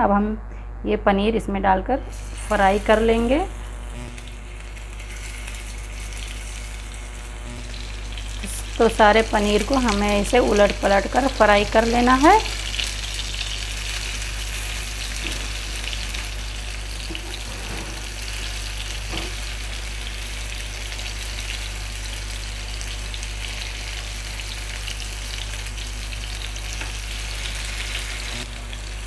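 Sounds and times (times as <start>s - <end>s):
paneer sizzling in oil: 2.0s - 29.0s.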